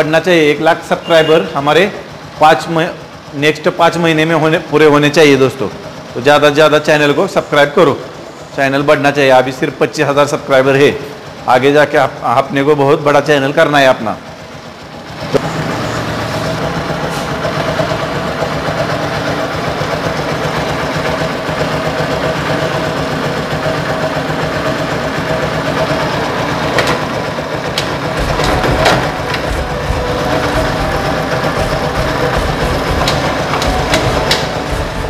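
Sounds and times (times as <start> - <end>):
motorcycle engine running: 0.0 - 35.0.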